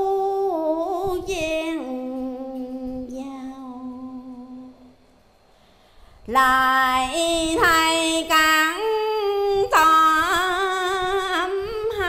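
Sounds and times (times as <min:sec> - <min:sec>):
woman chanting verse: 0:06.3 - 0:12.0.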